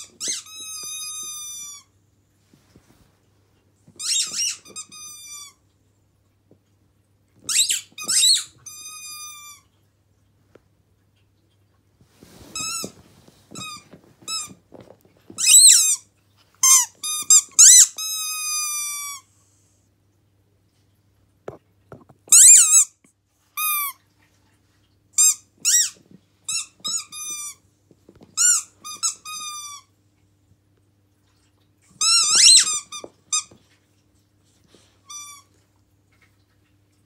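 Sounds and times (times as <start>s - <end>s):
squeaky dog toy squeaking: 0.0s - 1.9s, 3.9s - 5.6s, 7.4s - 9.6s, 15.3s - 16.0s, 16.6s - 19.2s, 22.2s - 23.0s, 23.6s - 24.0s, 25.2s - 27.6s, 28.4s - 29.9s, 32.0s - 33.6s.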